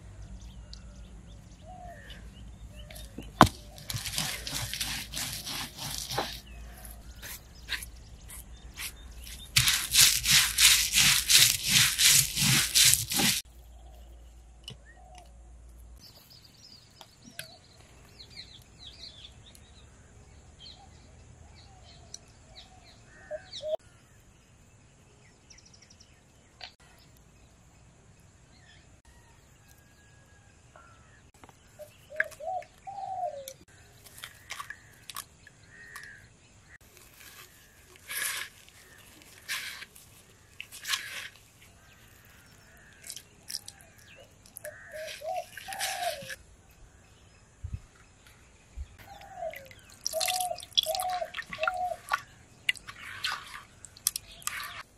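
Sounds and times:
birds chirping: 0.0s - 24.2s, 30.4s - 54.9s
stone roller grinding spices: 3.0s - 7.9s, 8.8s - 13.4s, 37.0s - 41.4s, 44.5s - 46.4s.

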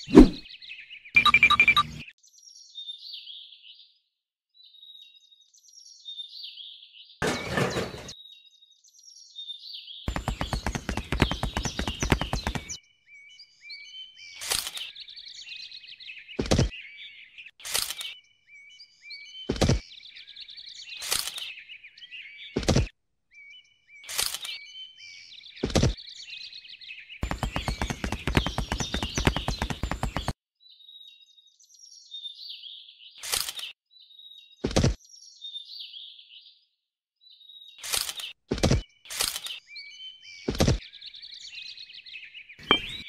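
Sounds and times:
birds chirping and twittering: 0.0s - 22.7s, 23.3s - 43.0s
dull knock: 10.1s - 12.7s, 27.2s - 30.3s, 42.6s - 43.0s.

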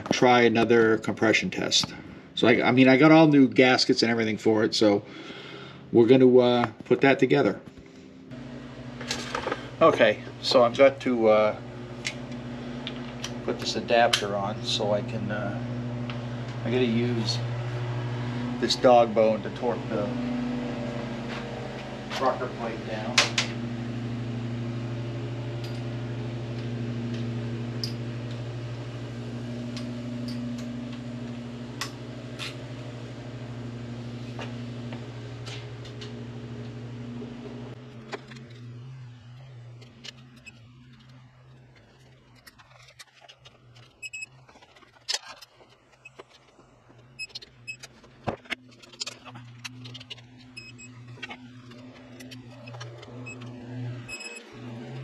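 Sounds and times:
steady low hum: 0.0s - 55.0s
short high beeps: 54.1s - 54.4s.

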